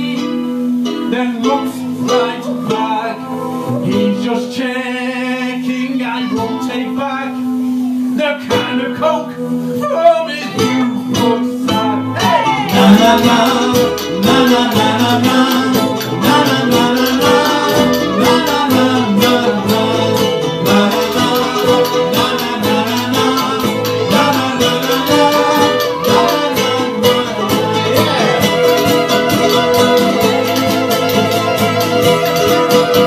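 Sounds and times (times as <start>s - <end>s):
person singing: 0.0s - 33.0s
strummed ukulele: 0.0s - 33.0s
banjo: 9.7s - 33.0s.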